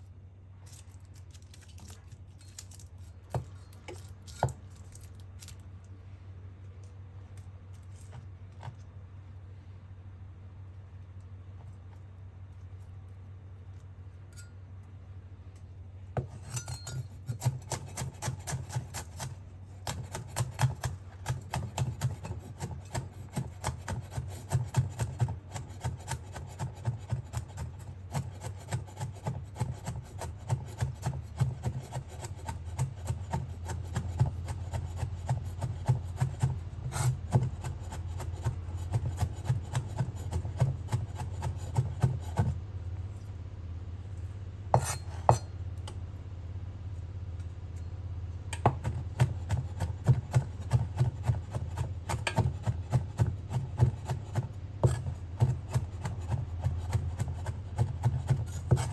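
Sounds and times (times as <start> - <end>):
steady low hum: 0.0 - 58.9
knife chopping on wooden board: 3.3 - 4.6, 16.2 - 42.6, 44.7 - 45.5, 48.5 - 58.9.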